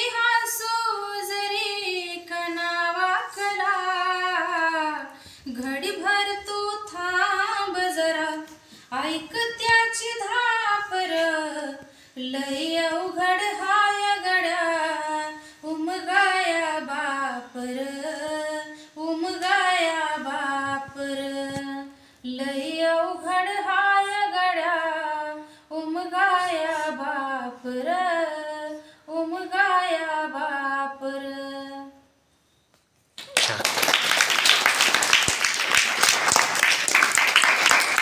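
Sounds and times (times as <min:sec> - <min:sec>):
woman singing unaccompanied: 0:00.0 - 0:32.1
children applauding: 0:33.2 - 0:38.0.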